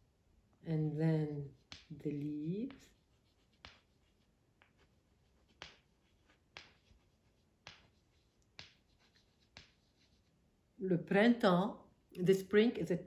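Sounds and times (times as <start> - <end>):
pen strokes on paper: 1.2 - 10.5.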